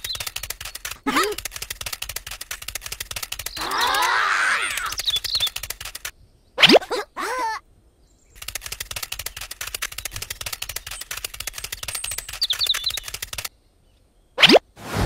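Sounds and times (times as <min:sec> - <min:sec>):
rapid dry clicks: 0:00.0 - 0:04.1, 0:04.7 - 0:06.1, 0:08.4 - 0:13.5.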